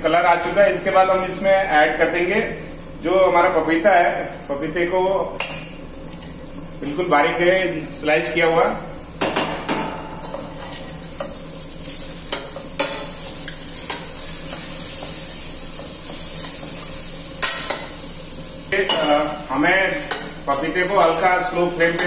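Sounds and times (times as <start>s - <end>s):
papaya slices sizzling in a pan: 5.2s - 22.0s.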